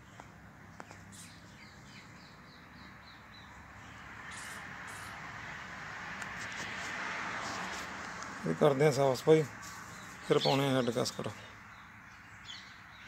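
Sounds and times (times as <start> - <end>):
bird chirping: 0.0 - 5.2, 9.7 - 13.0.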